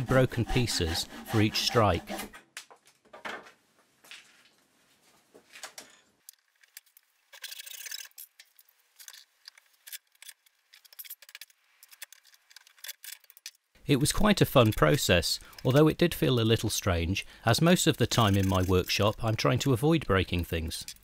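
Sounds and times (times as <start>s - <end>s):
hand saw cutting wood: 0.0s - 2.4s.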